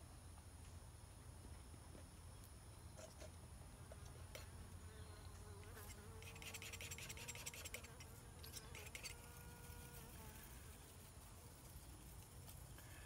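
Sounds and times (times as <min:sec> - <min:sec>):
flying insect buzzing: 0:04.6 - 0:13.0.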